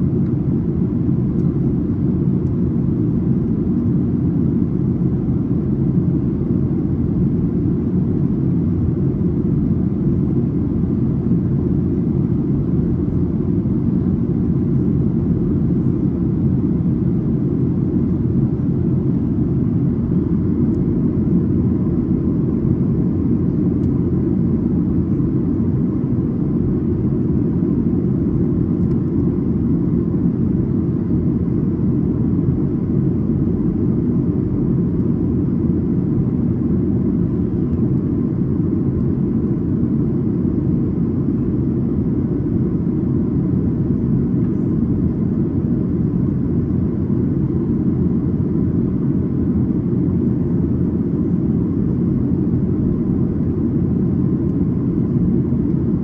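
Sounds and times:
airplane cabin engine rumble: 0.0 - 56.0.

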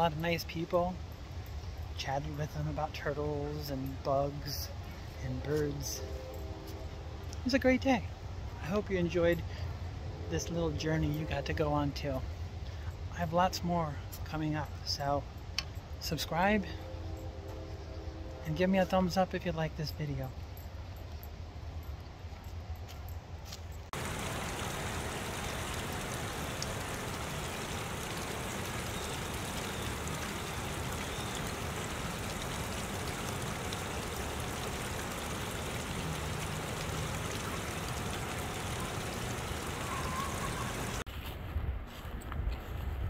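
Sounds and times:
water splashing down waterfall: 24.0 - 41.0.

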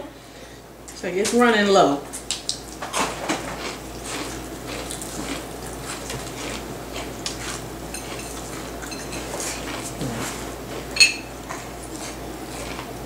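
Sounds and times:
cutlery and plates clinking: 7.9 - 9.6, 11.0 - 11.3.

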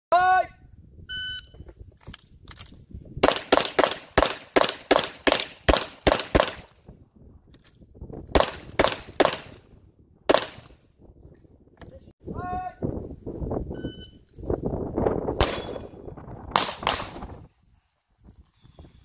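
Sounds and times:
pistol shots: 3.2 - 6.7, 8.3 - 9.6, 10.3 - 10.7, 15.4 - 15.8, 16.5 - 17.2.

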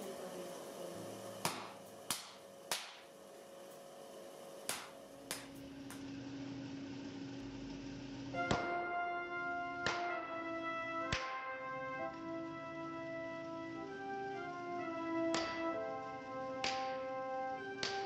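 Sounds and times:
hammer striking steel on anvil: 1.4 - 3.1.

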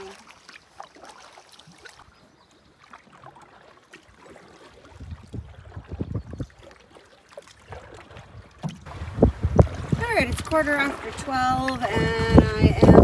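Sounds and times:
paddle splashing water: 0.0 - 13.0
wind buffeting microphone: 4.9 - 6.7, 7.7 - 13.0.

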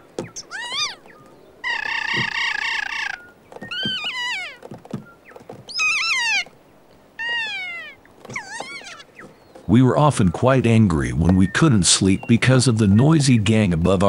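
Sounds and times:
parrots calling shrilly: 0.2 - 4.7, 5.7 - 6.6, 7.2 - 9.4.

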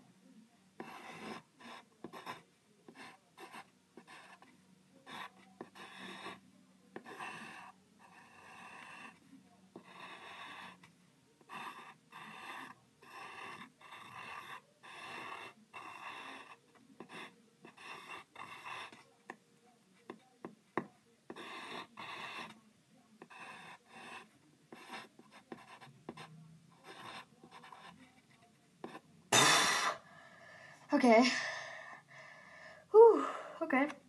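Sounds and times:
pencil scratching on paper: 0.8 - 19.4, 20.0 - 22.6, 23.2 - 29.0.

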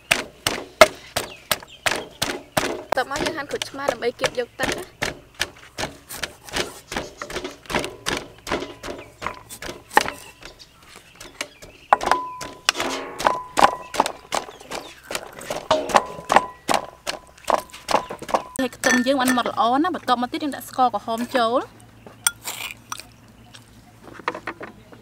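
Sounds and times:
cleaver chopping on wooden block: 0.0 - 10.4.

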